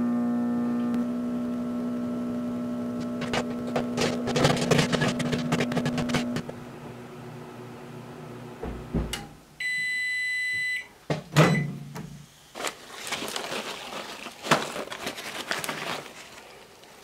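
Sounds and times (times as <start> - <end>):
microwave humming: 0.0 - 12.2
paper bag crinkling: 3.2 - 6.4, 12.5 - 17.0
microwave beep: 9.6 - 11.8.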